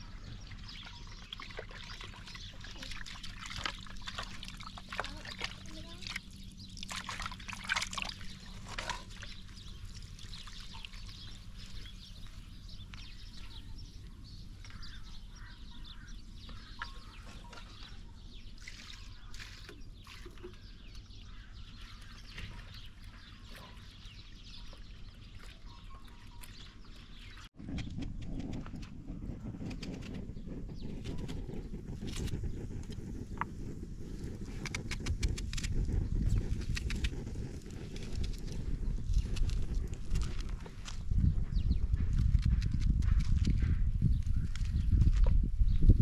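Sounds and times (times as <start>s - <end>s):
water splashing in a metal pot: 1.0s - 11.4s.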